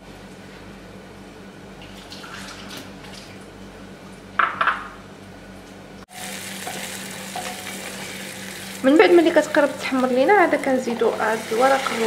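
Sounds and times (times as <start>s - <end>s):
kitchen background: 4.3s - 5.0s, 6.1s - 12.0s
onions sizzling in oil: 6.1s - 12.0s.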